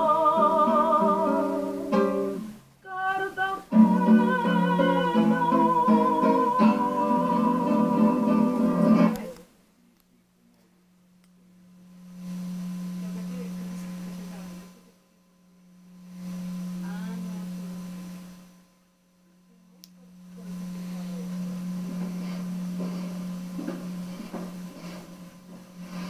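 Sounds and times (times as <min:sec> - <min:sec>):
low hum-like electronic tone: 0:11.3 - 0:26.0.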